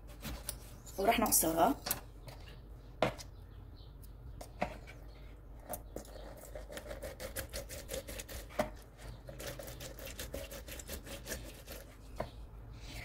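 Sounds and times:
lemon twisting on juicer: 5.6 - 12.2.

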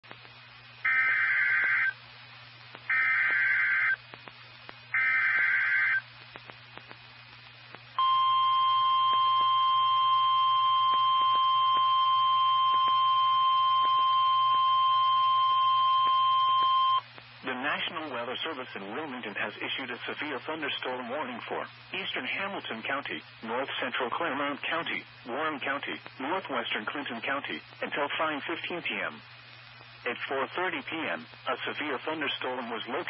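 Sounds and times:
radio low hum: 0.0 - 33.0
static clicks: 0.0 - 33.0
warbling data tones: 4.9 - 6.1.

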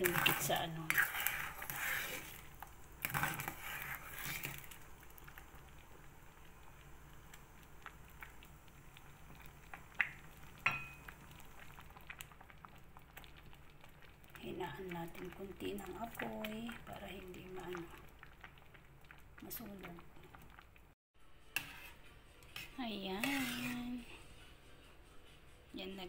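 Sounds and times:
metal spoon scraping a pot: 0.0 - 4.8, 21.4 - 24.4
faint bubbling hiss: 0.0 - 21.0
spoon clinking on pot: 10.6 - 11.1.

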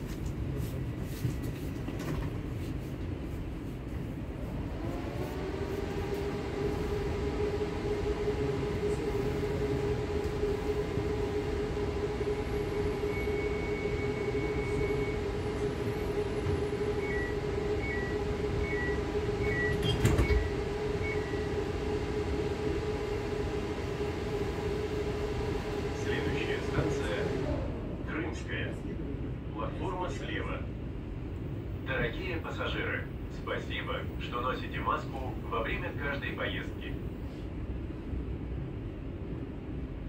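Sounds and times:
train wheels rumbling on track: 0.0 - 40.0
electric train motor whine: 4.6 - 27.9.

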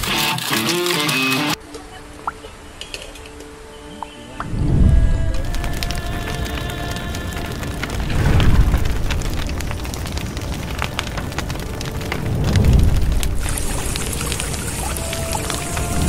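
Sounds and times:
crackling patter: 0.0 - 1.6, 4.5 - 16.0
deep booming swells: 4.4 - 6.0, 7.8 - 15.0.

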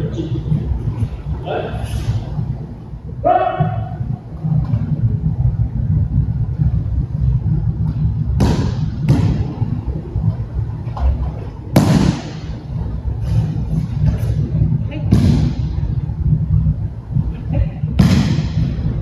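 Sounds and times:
low rumble: 0.0 - 19.0
bodies slapping a mat: 8.3 - 9.6, 10.9 - 12.5, 18.0 - 18.7.

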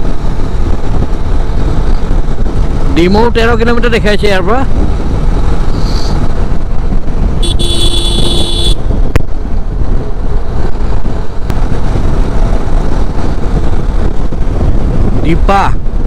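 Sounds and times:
wind and road noise: 0.0 - 16.0
horn sounding: 7.4 - 8.9.

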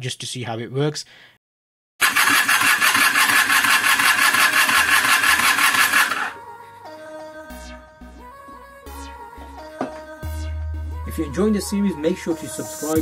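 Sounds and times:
electric starter motor whining: 2.0 - 6.4
background music: 6.1 - 13.0.

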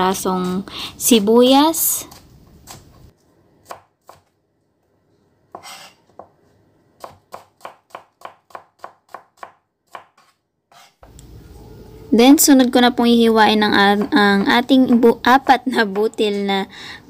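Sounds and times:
knife slicing on cutting board: 5.5 - 6.0, 9.9 - 11.0.

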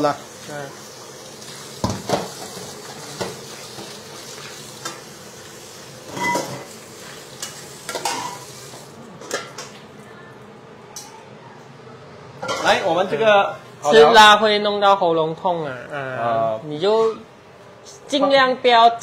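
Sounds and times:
metal cookware clanking: 6.1 - 6.7, 7.4 - 8.5, 12.4 - 12.9.

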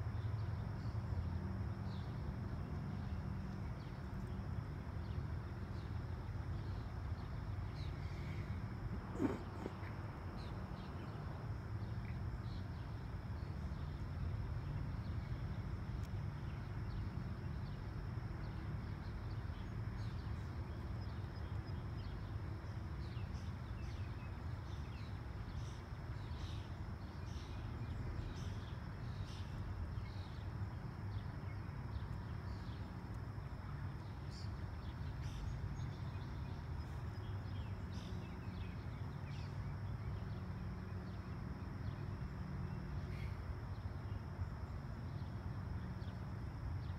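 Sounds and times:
birds chirping: 6.6 - 11.2.

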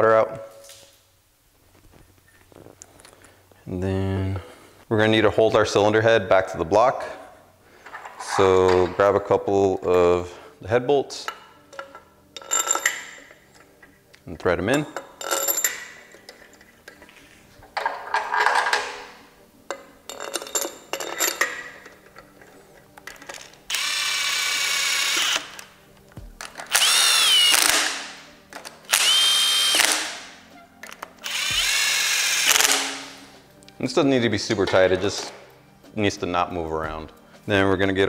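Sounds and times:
metal bolts clinking: 11.1 - 23.8, 30.6 - 31.4
cordless drill running: 23.7 - 25.6, 26.7 - 28.1, 28.9 - 30.2, 31.2 - 33.1.

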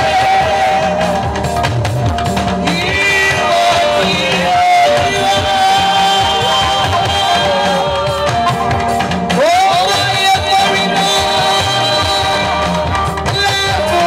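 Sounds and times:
choir singing: 0.0 - 1.4, 2.6 - 8.2
lead singer holding long notes: 0.0 - 1.7, 2.5 - 14.0
band with drums and guitar: 0.0 - 14.0.

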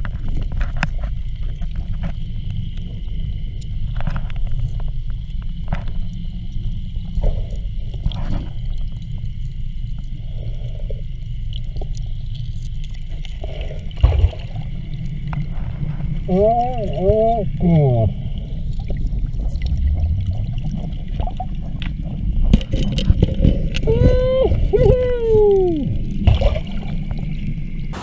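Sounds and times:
underwater dredge rumble: 0.0 - 28.0.

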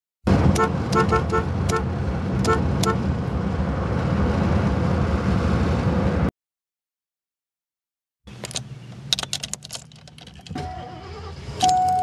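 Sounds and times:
low rumble of vehicle noise: 0.2 - 6.3, 8.3 - 12.0
car horn toots: 0.5 - 3.0.

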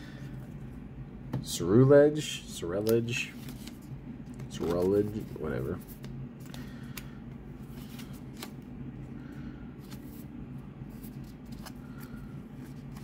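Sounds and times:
steady low hum: 0.0 - 13.0
cards clicking and rustling: 2.8 - 8.6, 10.9 - 13.0.

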